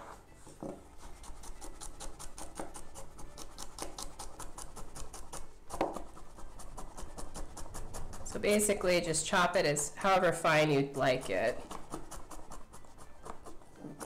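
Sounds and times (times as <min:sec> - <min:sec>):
knife chopping on wooden board: 0:00.6 - 0:08.4, 0:11.6 - 0:14.0.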